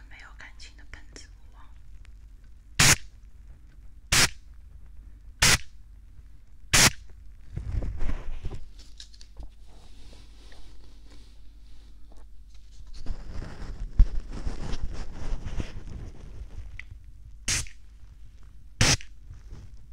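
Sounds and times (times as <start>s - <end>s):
sharp bursts at microphone: 2.8s - 3.1s, 4.1s - 4.4s, 5.4s - 5.7s, 6.7s - 7.0s, 17.5s - 17.8s, 18.8s - 19.0s
soft rustling and handling: 3.2s - 5.3s, 7.1s - 19.9s.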